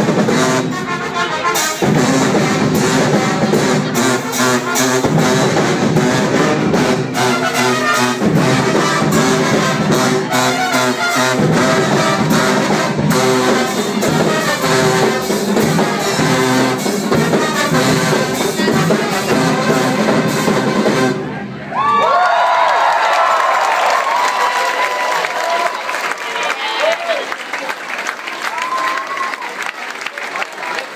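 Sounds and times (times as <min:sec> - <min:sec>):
brass band playing: 0:00.0 - 0:21.7.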